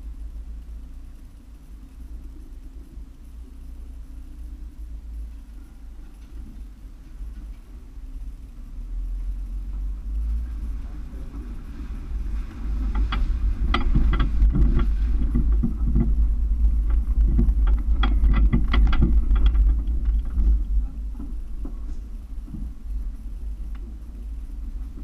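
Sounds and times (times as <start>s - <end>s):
engine low rumble: 0.0s - 25.0s
knocks and rattles from bumps: 9.2s - 25.0s.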